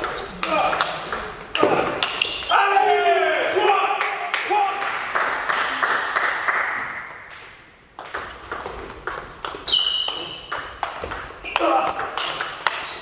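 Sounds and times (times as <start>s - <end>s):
high squeak: 9.7s - 10.6s.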